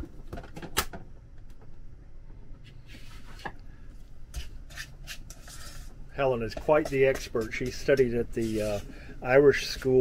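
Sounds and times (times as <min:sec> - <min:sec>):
hands rubbing in dough: 0:04.4 - 0:10.0
metal spoon scraping plastic bowl: 0:04.4 - 0:10.0.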